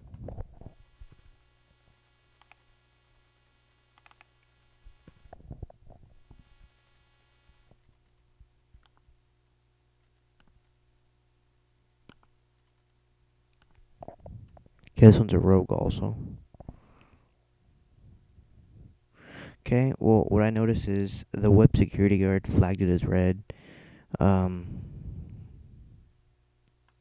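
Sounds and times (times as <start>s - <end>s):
low electrical hum: 0.0s - 27.0s
computer mouse clicks: 1.0s - 1.3s, 2.4s - 2.6s, 4.0s - 5.4s, 8.8s - 9.1s, 10.4s - 10.7s, 12.0s - 12.8s, 13.5s - 13.8s
faint high whine: 12.8s - 27.0s.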